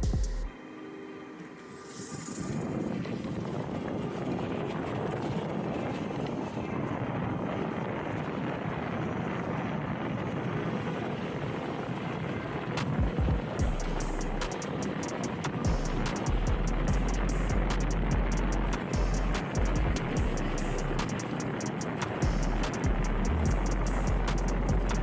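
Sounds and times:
wind rushing over microphone: 2.1s - 25.0s.

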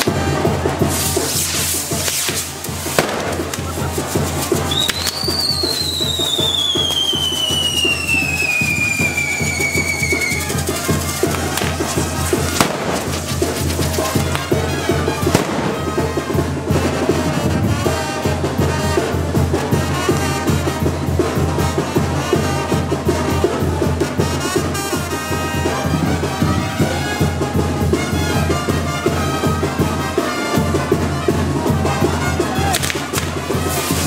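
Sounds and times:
firework bangs: 0.0s - 18.1s, 31.8s - 34.0s
fireworks crackling and popping: 0.0s - 20.8s, 21.4s - 34.0s
loud band music: 0.0s - 34.0s.

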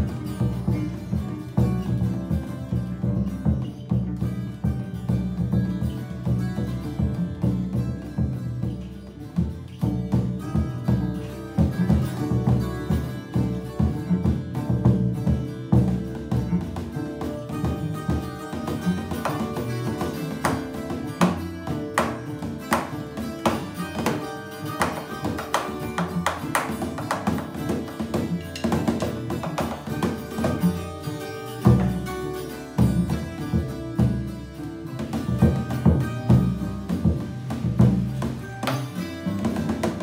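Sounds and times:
acoustic folk trio playing: 0.0s - 40.0s
plucked strings: 0.0s - 40.0s
drumstick strikes: 15.8s - 40.0s.

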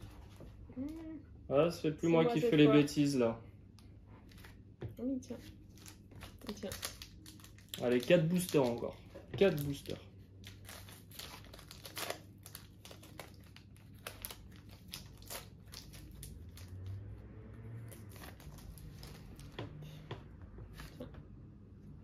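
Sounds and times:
foil wrapper crinkling and tearing: 5.6s - 16.9s, 17.9s - 19.5s.

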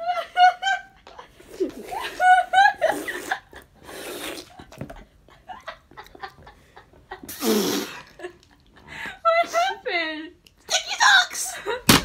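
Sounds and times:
girls laughing under breath: 0.0s - 3.9s.

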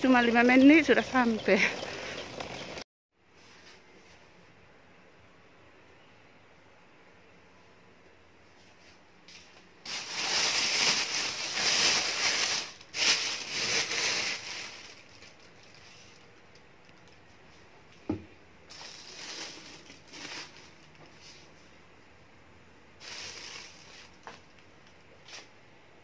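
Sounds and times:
plastic bags rustling and crinkling: 9.3s - 17.8s, 18.7s - 21.6s, 23.0s - 25.5s.

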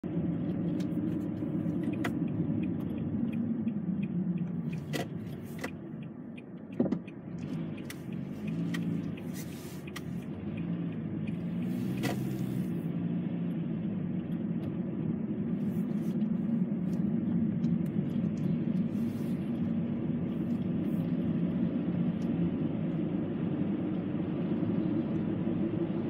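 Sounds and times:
car engine and road noise: 0.0s - 26.0s
light clicks and ticks: 0.6s - 12.5s.

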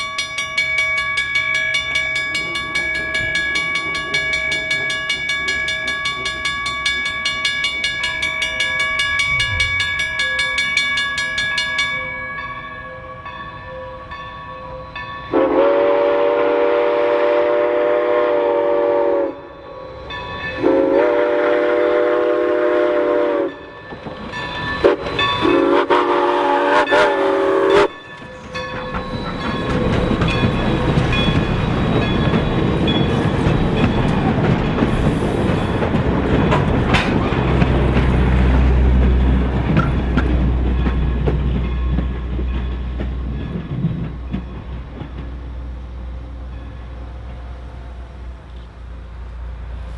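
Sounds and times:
train rushing past: 0.0s - 12.3s, 14.7s - 49.9s
steam locomotive whistle: 15.3s - 19.9s, 20.6s - 23.6s, 24.8s - 28.0s.

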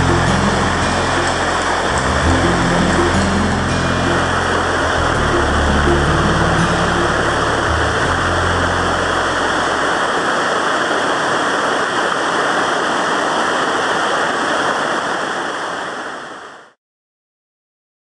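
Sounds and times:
background music: 0.0s - 9.8s
waterfall roaring: 0.0s - 16.8s.

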